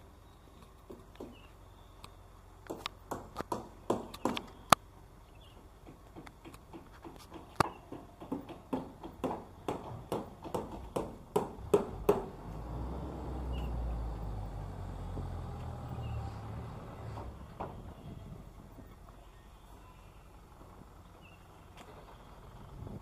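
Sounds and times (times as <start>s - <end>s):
low steady rumble: 11.2s - 23.0s.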